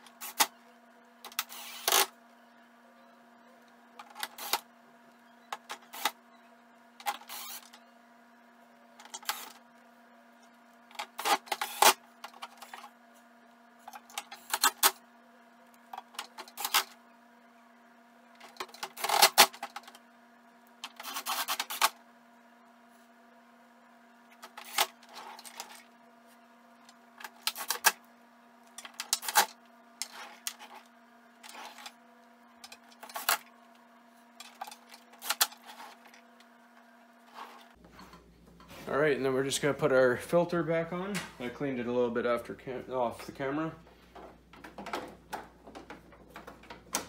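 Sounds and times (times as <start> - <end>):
cordless drill driving screws: 1.5 - 2.0, 7.2 - 7.7.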